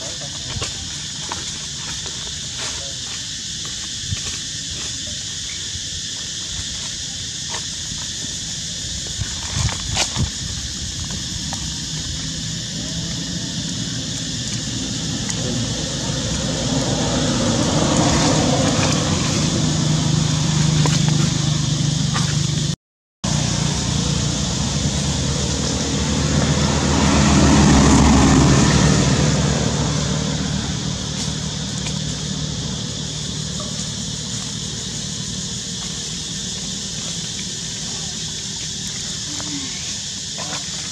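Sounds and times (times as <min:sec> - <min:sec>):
vehicle engine humming: 0:10.4 - 0:40.9.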